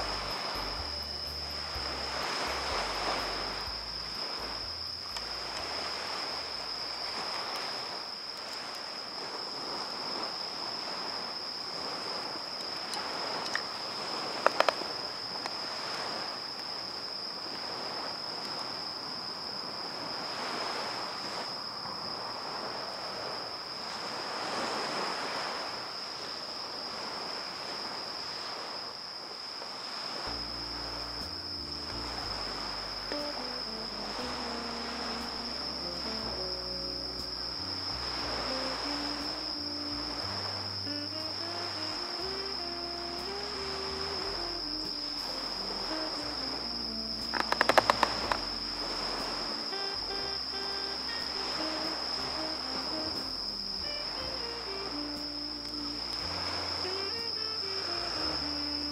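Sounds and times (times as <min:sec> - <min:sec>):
high-pitched whine: 0:00.0 - 0:08.2, 0:30.2 - 0:58.9
small waves washing on sand: 0:00.0 - 0:31.3, 0:37.2 - 0:58.9
sharp clicks: 0:47.3 - 0:48.4.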